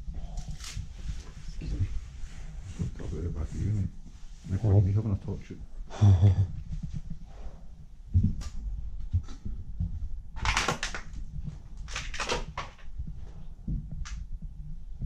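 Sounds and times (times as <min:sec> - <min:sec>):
clutter rustling: 0:06.6 - 0:14.3
camera handling rumble: 0:08.2 - 0:13.0.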